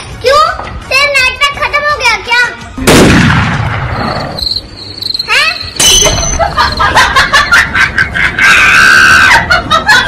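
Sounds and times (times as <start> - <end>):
crickets chirping: 4.0 - 5.8.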